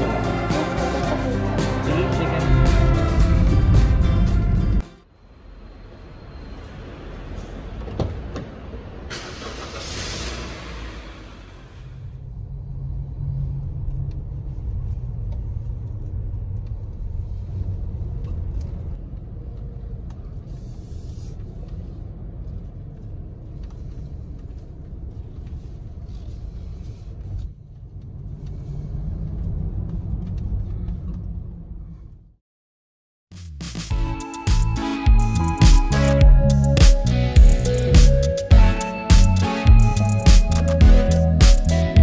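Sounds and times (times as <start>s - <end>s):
car engine and road rumble: 0.0s - 32.4s.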